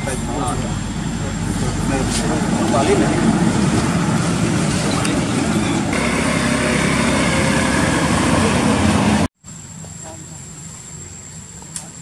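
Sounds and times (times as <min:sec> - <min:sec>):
vehicle engine and road rumble: 0:00.0 - 0:12.0.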